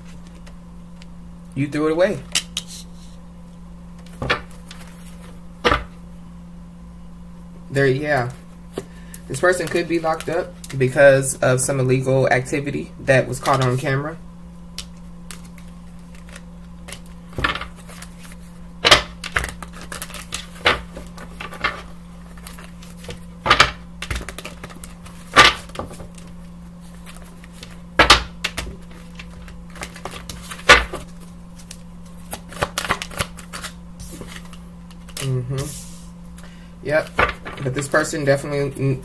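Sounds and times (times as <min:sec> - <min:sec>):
steady low hum: 0:00.0 - 0:39.0
cards being shuffled: 0:03.9 - 0:06.0, 0:08.2 - 0:10.8, 0:13.3 - 0:13.9, 0:14.7 - 0:36.4.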